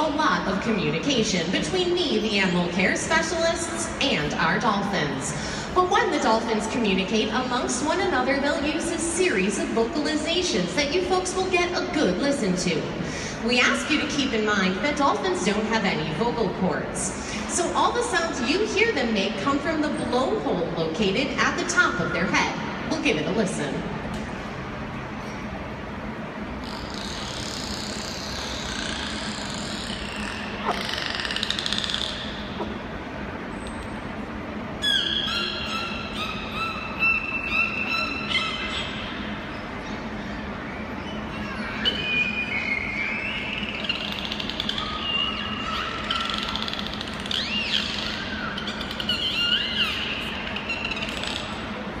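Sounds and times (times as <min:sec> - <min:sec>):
dolphin whistles: 0:26.6 - 0:32.8, 0:34.8 - 0:51.7
dolphin buzzing pulse call: 0:26.6 - 0:32.9, 0:34.8 - 0:39.8, 0:40.9 - 0:51.8.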